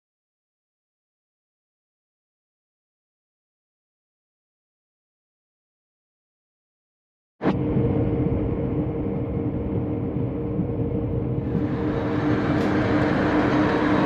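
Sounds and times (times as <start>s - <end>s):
lathe running with whirring gears: 11.4s - 14.0s.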